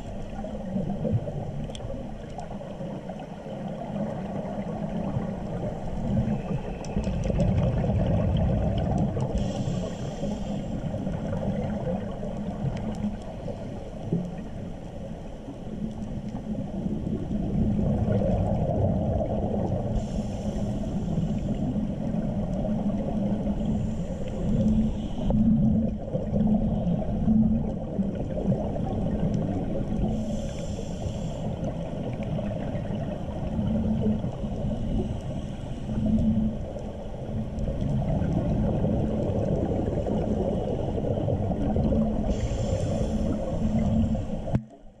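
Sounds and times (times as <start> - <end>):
regulator inhale hisses: 9.3 - 11.1, 19.9 - 21.9, 23.5 - 25.5, 30.0 - 31.8, 34.5 - 36.2, 42.2 - 44.6
regulator exhaled air bubbling: 37.9 - 44.6.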